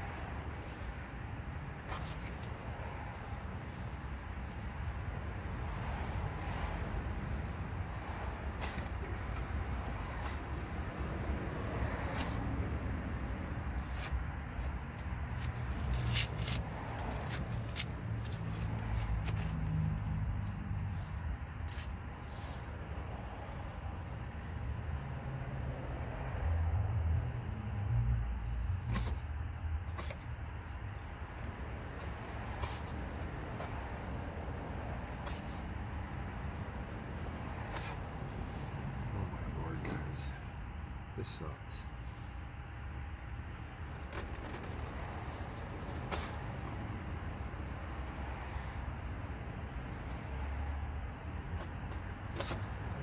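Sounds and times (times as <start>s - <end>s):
sticker scraping and peeling: 13.8s - 19.7s, 43.9s - 46.4s.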